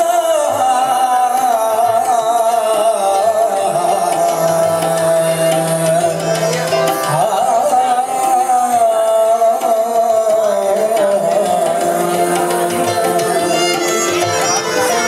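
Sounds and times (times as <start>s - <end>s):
tabla strokes: 0.0s - 15.0s
violin: 0.0s - 15.0s.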